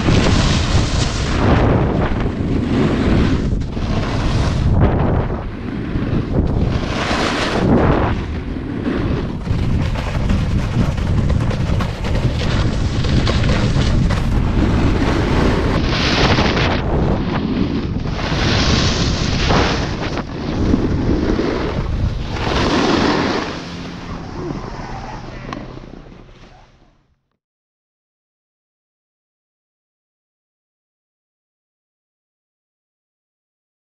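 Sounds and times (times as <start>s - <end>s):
wind buffeting microphone: 0.0s - 26.4s
snowboard edges scraping snow: 0.0s - 26.6s.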